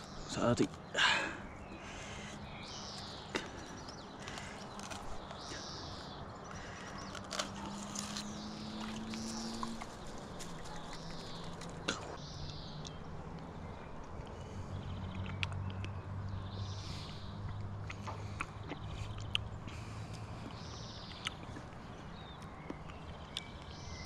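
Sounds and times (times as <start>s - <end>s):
bird chirping: 0.0s - 24.0s.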